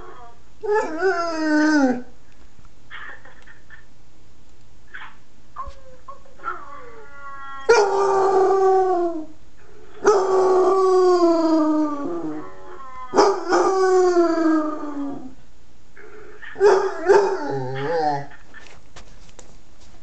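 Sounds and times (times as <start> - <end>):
dog howling: 0.0 - 2.1, 6.5 - 9.4, 10.0 - 15.4.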